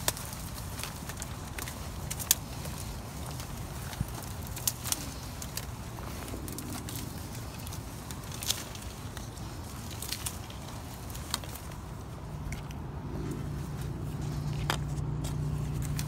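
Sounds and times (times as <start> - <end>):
dry reeds crackling underfoot: 0.0 - 16.0
low outdoor rumble: 0.0 - 16.0
passing car engine hum: 5.8 - 8.9, 11.7 - 16.0.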